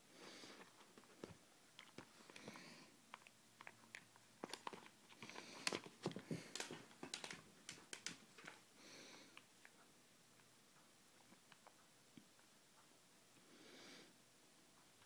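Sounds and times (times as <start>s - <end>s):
puppy paws tapping on carpet: 4.4s - 8.6s.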